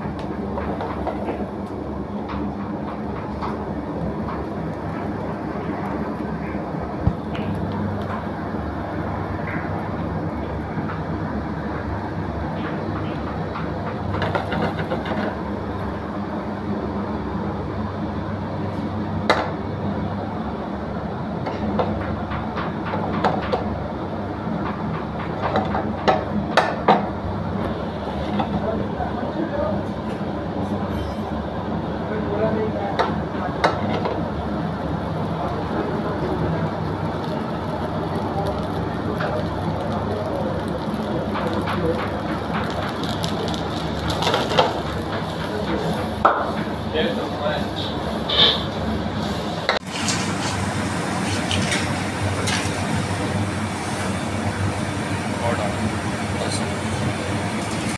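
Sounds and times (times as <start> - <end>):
low kitchen roar: 0.0 - 57.9
rice sizzling in a frying pan: 33.1 - 57.9.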